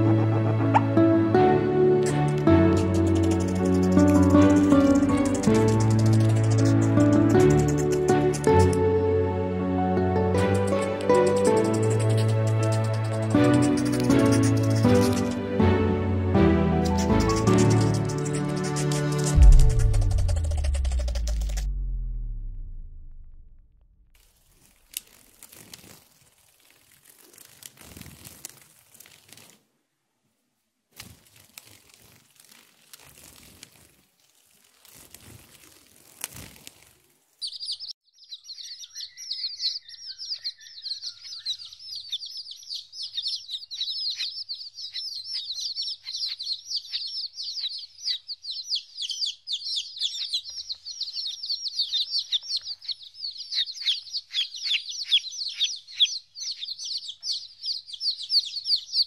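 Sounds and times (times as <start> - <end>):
chicks peeping: 2.0 - 8.8, 10.3 - 15.4, 16.8 - 21.6, 37.4 - 59.0
rustling crackling noise: 2.0 - 8.8, 16.8 - 29.8, 30.9 - 37.5.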